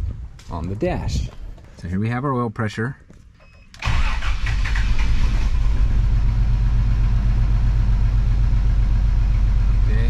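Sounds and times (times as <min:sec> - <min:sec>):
engine starting and idling: 0:03.8 - 0:08.5.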